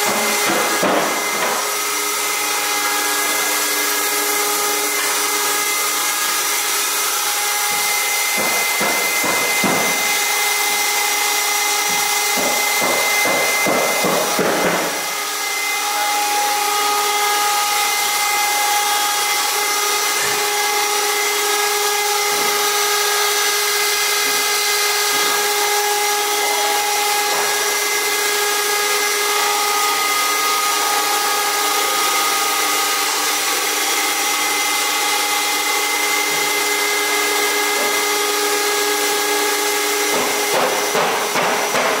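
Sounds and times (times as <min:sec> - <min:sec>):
machine whine with held tones: 0:14.9 - 0:40.1.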